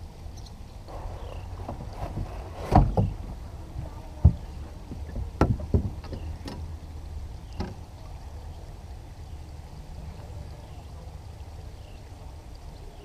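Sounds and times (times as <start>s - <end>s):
steady low rumble: 0.0s - 13.0s
knocks and thumps on boat deck: 1.6s - 6.6s.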